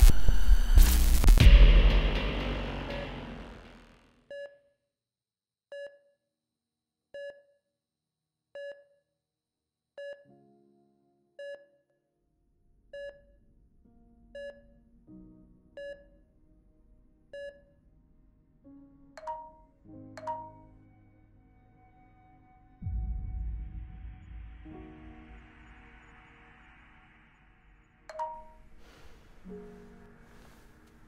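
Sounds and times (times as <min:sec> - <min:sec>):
low musical drone: 0:00.0 - 0:04.0, 0:20.7 - 0:28.0
patient monitor beeping: 0:19.2 - 0:20.7.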